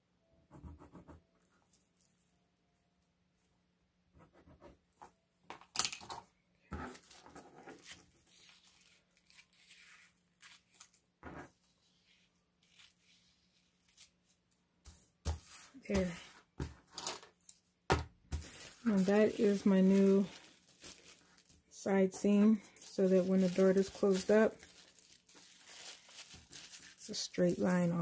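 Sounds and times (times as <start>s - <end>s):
paper crackling and rustling: 6.8s - 11.0s, 18.3s - 28.0s.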